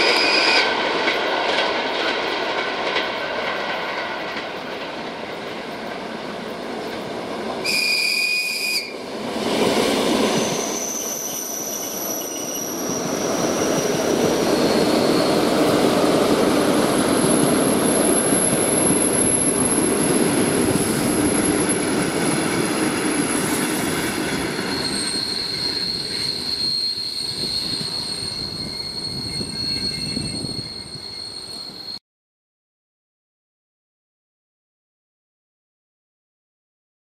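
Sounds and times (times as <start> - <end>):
train rumbling on track: 0.0 - 32.0
high squealing tones: 10.4 - 16.0, 24.6 - 32.0.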